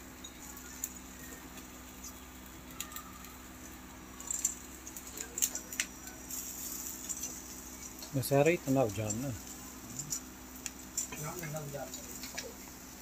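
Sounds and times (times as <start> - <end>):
low steady hum: 0.0 - 13.0
tongs clicking on grill grate: 4.2 - 12.6.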